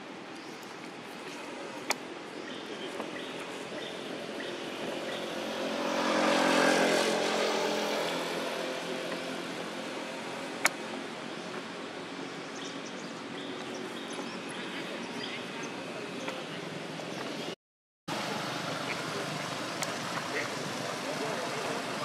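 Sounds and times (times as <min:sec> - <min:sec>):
vehicle passing: 0:03.2 - 0:10.6.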